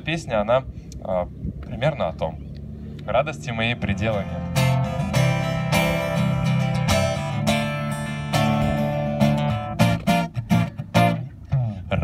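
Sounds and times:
acoustic guitar strummed chords: 4.1s - 11.8s.

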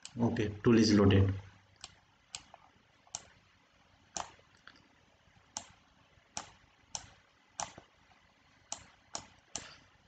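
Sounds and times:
computer mouse clicks: 1.8s - 3.4s, 4.1s - 4.8s, 5.5s - 7.9s, 8.7s - 9.8s.

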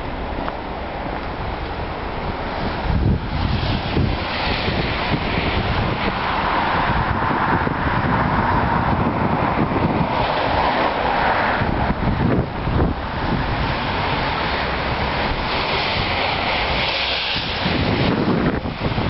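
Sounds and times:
car tyres on wet street: 0.0s - 19.0s
wind rumbling on microphone: 0.0s - 19.0s
rain hissing: 10.3s - 19.0s.

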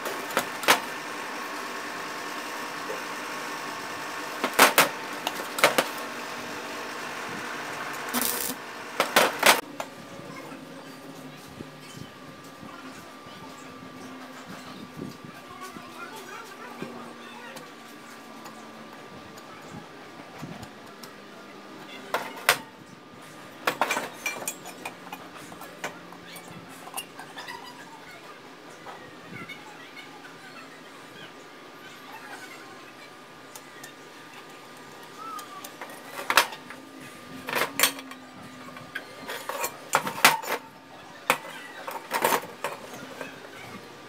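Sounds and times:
arc welder crackling: 0.0s - 9.6s.

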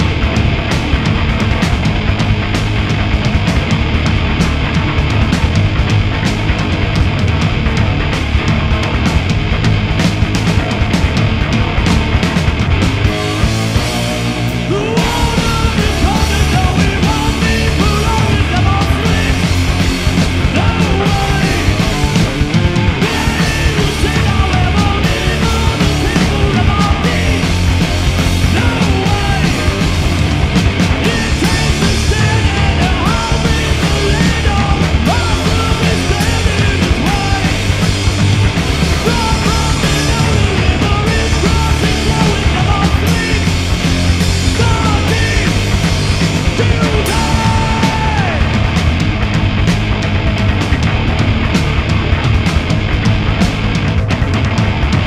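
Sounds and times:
bass guitar: 0.0s - 55.0s
electric guitar: 0.0s - 55.0s
rock band playing live: 0.0s - 55.0s
man singing into a microphone: 14.7s - 19.5s, 20.5s - 22.0s, 23.0s - 27.6s, 28.4s - 29.8s, 31.0s - 37.7s, 39.0s - 43.6s, 44.5s - 45.7s, 46.4s - 48.5s.

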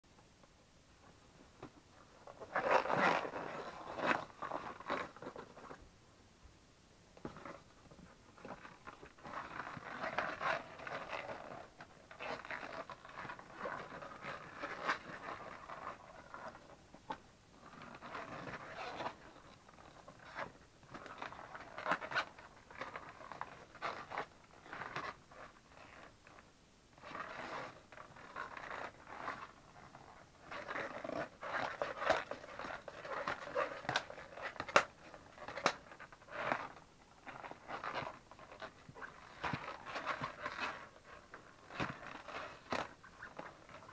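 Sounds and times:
rubber boots squeaking and creaking: 1.6s - 5.8s, 7.2s - 26.1s, 27.0s - 43.9s.

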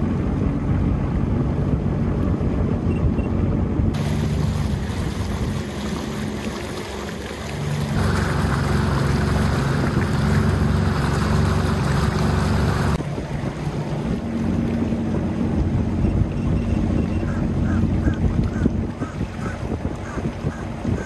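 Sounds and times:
water splashing at hull: 0.0s - 21.0s
watercraft engine running: 0.0s - 21.0s
rush of spray: 4.0s - 14.8s.

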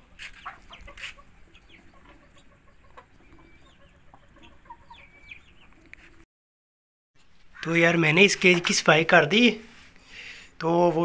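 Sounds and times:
chickens clucking: 0.0s - 6.2s.

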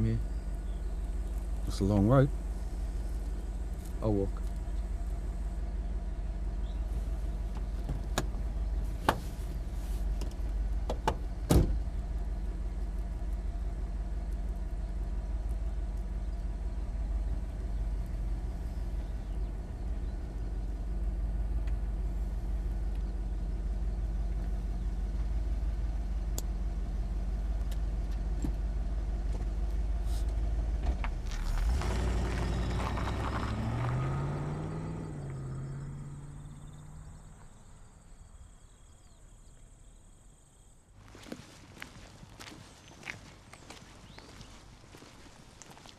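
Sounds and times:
car engine idling: 0.0s - 40.1s
car door clicking open and shut: 7.5s - 8.4s, 10.2s - 11.8s
car engine revving: 30.4s - 38.0s.

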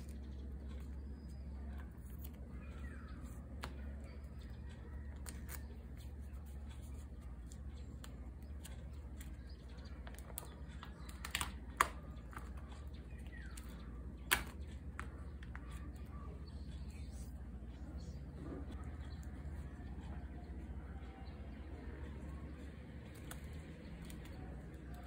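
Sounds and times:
plastic sleeves clicking and tapping: 7.9s - 12.6s, 13.2s - 15.8s.

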